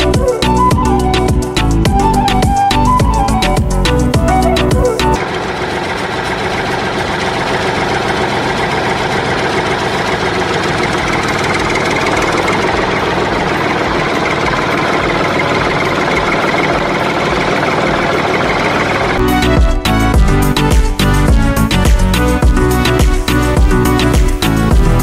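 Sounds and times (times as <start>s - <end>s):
tractor engine idling: 0.0s - 25.0s.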